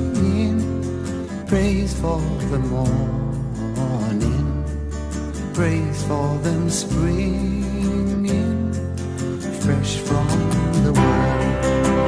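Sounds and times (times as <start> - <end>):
song with guitar: 0.0 - 12.0.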